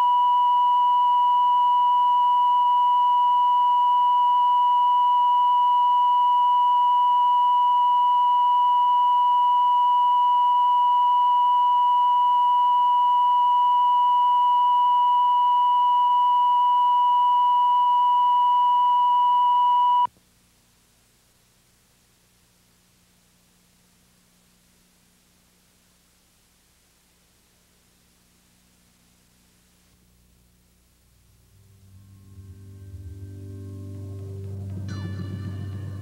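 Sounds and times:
steady reference tone beep: 0.0s - 20.1s.

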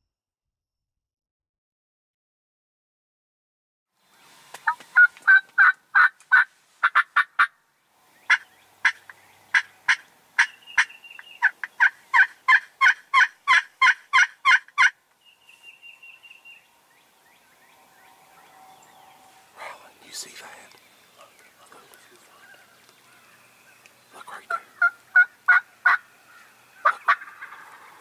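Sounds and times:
wild turkey yelping: 4.6s - 7.5s, 8.3s - 15.0s, 20.7s - 28.0s.

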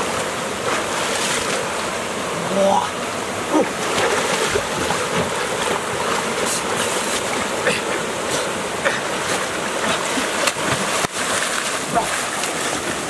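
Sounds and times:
water splashing from swimming: 2.8s - 13.0s.

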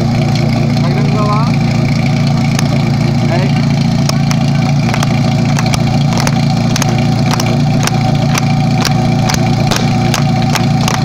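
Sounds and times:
pump engine idling: 0.0s - 11.0s
hand clapping: 4.0s - 11.0s.

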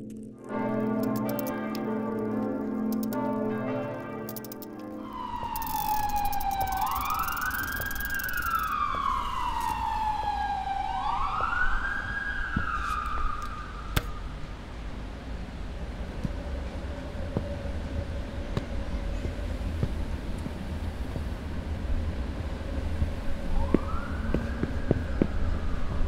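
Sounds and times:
sharp click: 0.8s - 1.8s, 2.9s - 3.3s, 4.3s - 4.8s, 5.5s - 8.8s
siren wailing: 4.3s - 14.0s, 23.4s - 26.0s
low traffic rumble: 4.8s - 26.0s.

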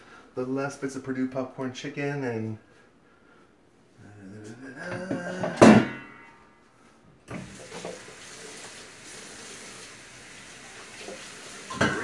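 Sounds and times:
kitchen tap running: 7.3s - 12.0s
air fryer basket clattering: 11.7s - 12.0s.

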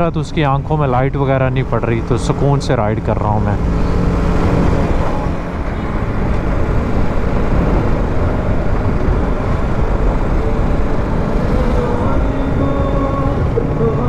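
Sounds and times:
motorcycle engine cruising: 0.0s - 14.0s
rough wind rush: 0.0s - 14.0s.

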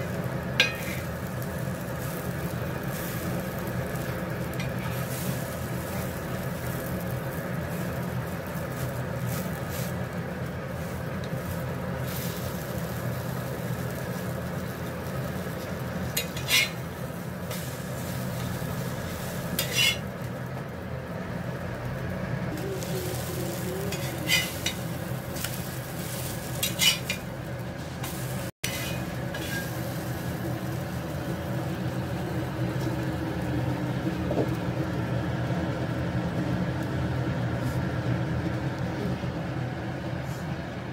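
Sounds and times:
paratha frying on a pan: 0.0s - 40.9s
steady low hum: 0.0s - 40.9s
spatula scraping a pan: 0.6s - 1.2s, 4.5s - 6.2s, 16.1s - 20.1s, 22.8s - 30.0s.

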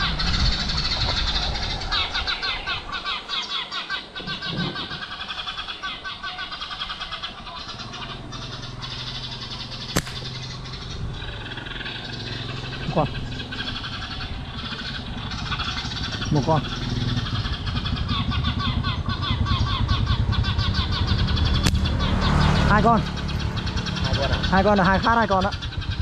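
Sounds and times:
birds chirping: 0.0s - 26.0s
motorbike engine idling: 0.0s - 26.0s
slingshot snap: 9.9s - 10.3s, 21.6s - 21.8s.

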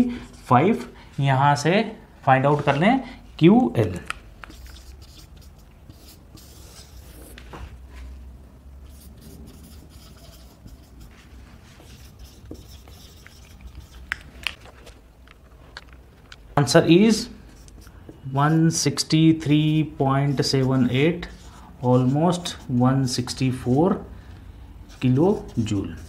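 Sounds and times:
marker writing on whiteboard: 4.0s - 8.1s, 8.8s - 14.6s, 17.1s - 26.0s.

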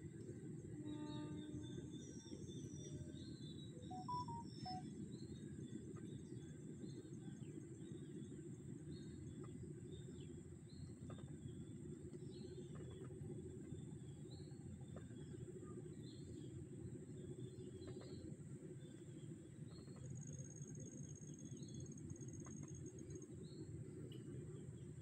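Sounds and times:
bird chirps: 3.9s - 4.8s.

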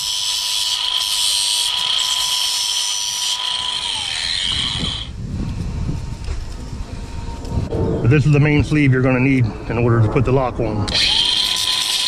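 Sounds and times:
angle grinder whining: 0.0s - 5.1s, 10.9s - 12.0s.

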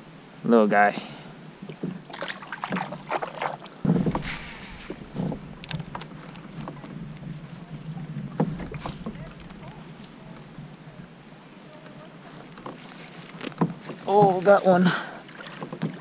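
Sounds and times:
water splashing: 1.6s - 16.0s
gear knocking on kayak hull: 3.8s - 10.5s.

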